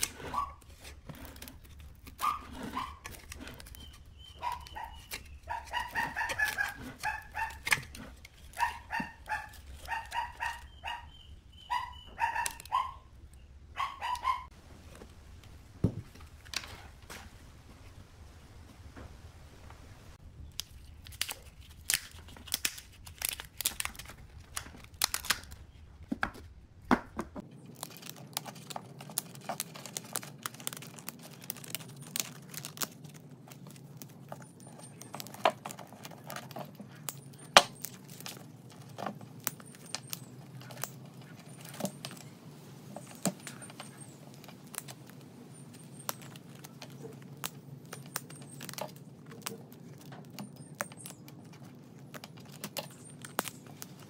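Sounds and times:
paper cone tearing and crackling: 0:00.0 - 0:10.7, 0:20.4 - 0:25.8, 0:27.5 - 0:50.5.

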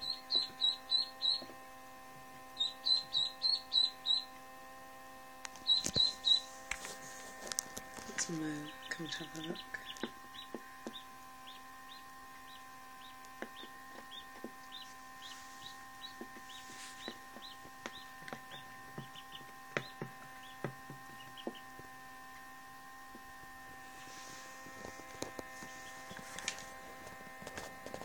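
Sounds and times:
duckling cheeping: 0:00.0 - 0:01.6, 0:02.5 - 0:04.4, 0:05.6 - 0:06.5, 0:08.0 - 0:21.7
beak tapping plastic box: 0:07.6 - 0:14.8, 0:15.6 - 0:21.8.

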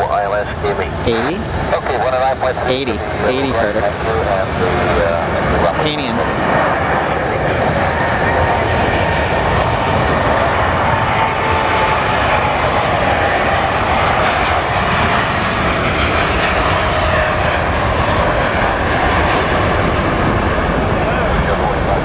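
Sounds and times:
jet airliner engines at takeoff: 0:00.0 - 0:22.0.

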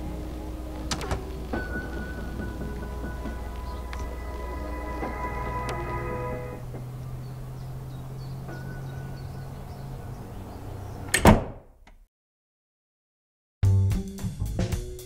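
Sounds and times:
low music drone: 0:00.0 - 0:10.9.

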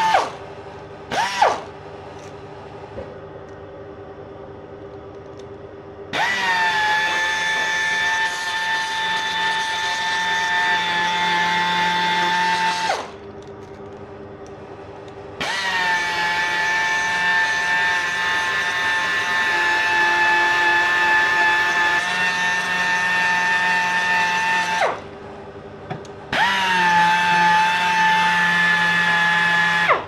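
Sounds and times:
pneumatic polisher whining: 0:00.0 - 0:00.4, 0:01.1 - 0:01.7, 0:06.1 - 0:13.2, 0:15.4 - 0:25.1, 0:26.3 - 0:30.0.

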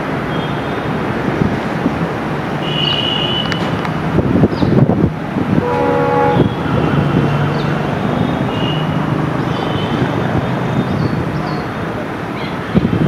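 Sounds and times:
diesel locomotive engine running: 0:03.6 - 0:12.3
train horn blast: 0:05.6 - 0:07.5.

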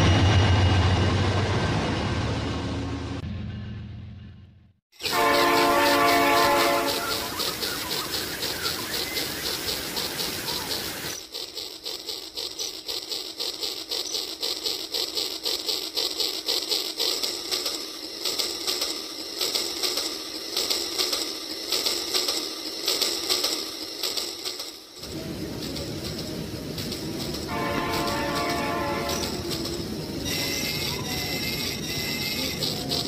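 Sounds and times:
toy train horn: 0:05.0 - 0:08.9, 0:27.3 - 0:33.0
toy train clicking on track: 0:05.0 - 0:33.0.

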